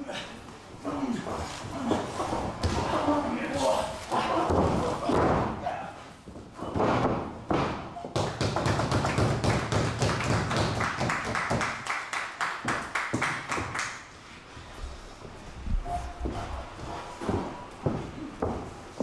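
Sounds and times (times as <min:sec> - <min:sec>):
audience clapping in rhythm: 0:08.2 - 0:14.2.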